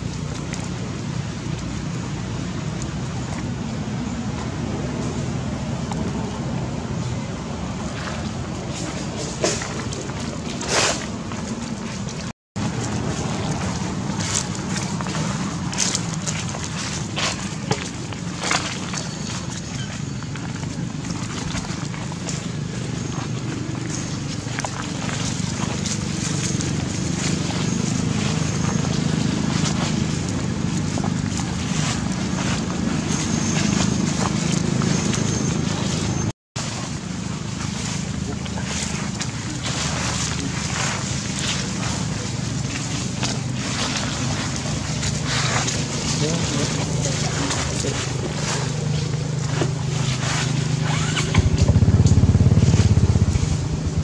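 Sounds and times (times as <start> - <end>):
low outdoor rumble: 0.0 - 54.0
dry leaves crackling underfoot: 8.0 - 54.0
wind buffeting microphone: 37.0 - 54.0.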